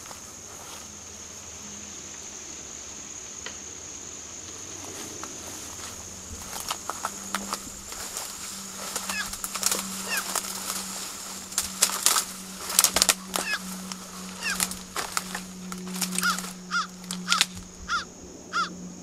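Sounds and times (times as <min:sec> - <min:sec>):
footsteps crunching through dry leaves: 0:00.0 - 0:01.6, 0:04.6 - 0:18.0
steady low hum: 0:00.0 - 0:19.0
bird calls: 0:07.5 - 0:18.8.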